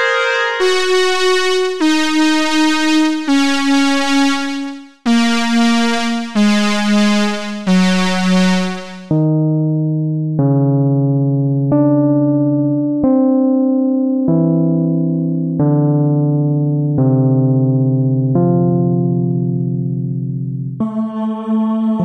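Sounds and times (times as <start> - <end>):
synth electric piano notes: 0.0 - 9.8.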